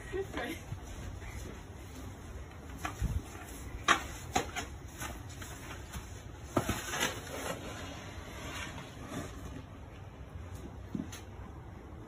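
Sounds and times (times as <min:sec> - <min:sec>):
wind rumble on microphone: 0:02.9 - 0:03.3.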